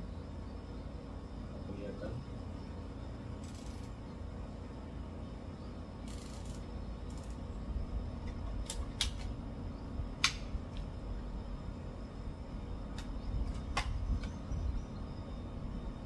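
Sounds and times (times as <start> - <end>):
low background rumble: 0.0 - 16.0
air rifle handling clicks: 8.6 - 9.4.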